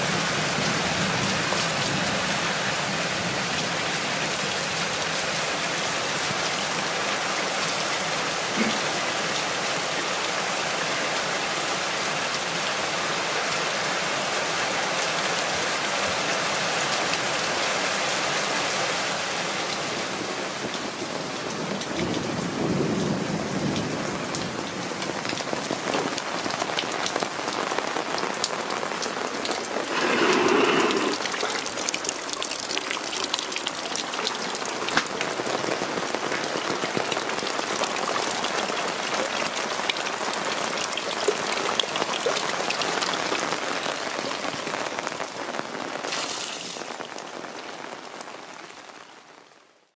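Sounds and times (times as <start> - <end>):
steady rain hiss: 0.0 - 49.9
downpipe gushing into rain barrel: 0.1 - 10.9, 25.8 - 44.7.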